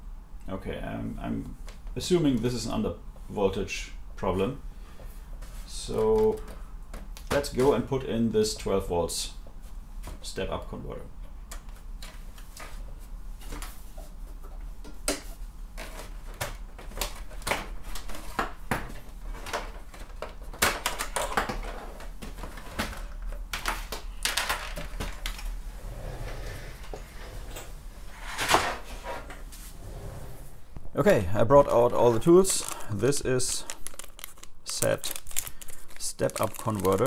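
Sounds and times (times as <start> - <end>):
computer cables being handled: 15.1 - 25.6, 31.6 - 37.0.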